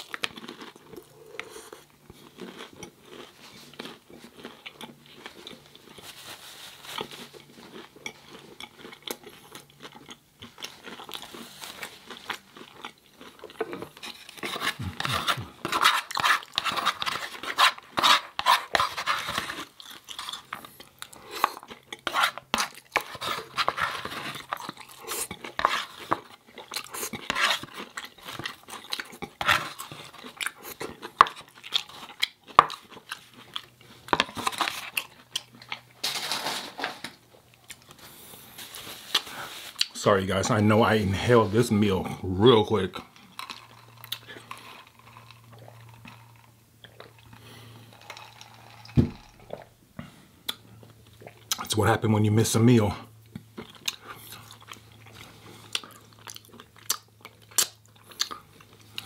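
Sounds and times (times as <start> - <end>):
crunchy chewing: 0.0 - 36.0, 53.2 - 59.0
utensils clinking and scraping dish: 36.0 - 37.2.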